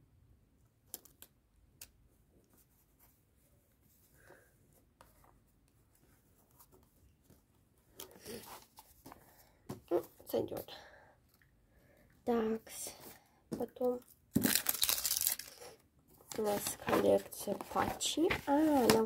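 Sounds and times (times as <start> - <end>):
paper rustling: 14.4 - 19.0.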